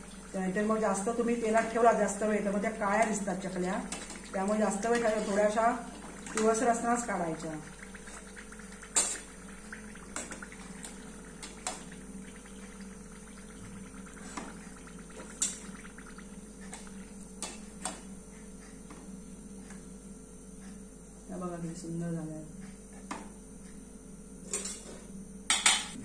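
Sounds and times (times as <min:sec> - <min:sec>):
hot oil sizzling and bubbling: 0:00.0 - 0:17.7.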